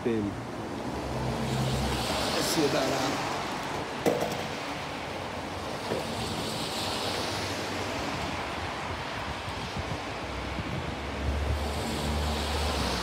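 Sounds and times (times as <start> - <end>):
skateboard knock: 4.0 - 4.6
wind on microphone: 5.8 - 13.0.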